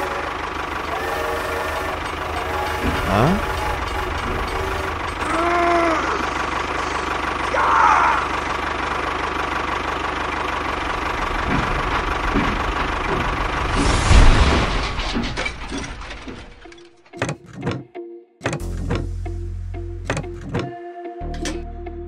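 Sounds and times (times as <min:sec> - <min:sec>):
tractor engine chugging: 0:00.0 - 0:17.3.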